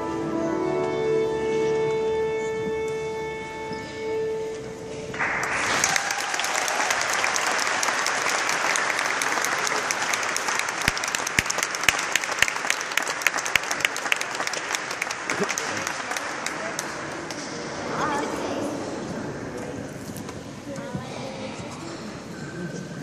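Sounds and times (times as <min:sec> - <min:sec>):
held musical chord: 0:00.0 - 0:05.0
audience applause: 0:05.2 - 0:17.6.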